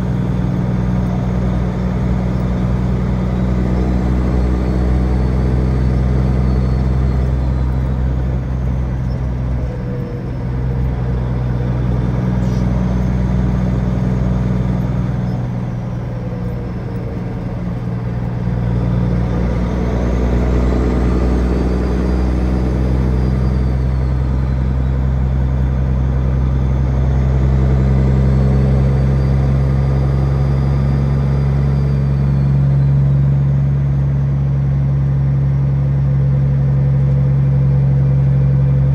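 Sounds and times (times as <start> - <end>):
truck diesel engine droning: 0.0 - 38.9.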